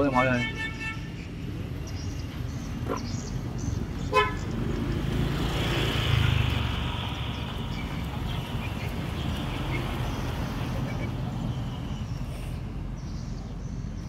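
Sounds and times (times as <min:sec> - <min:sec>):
vehicle horn beep: 0:00.0 - 0:01.2, 0:04.1 - 0:04.4
motor scooter engine passing: 0:04.5 - 0:11.1.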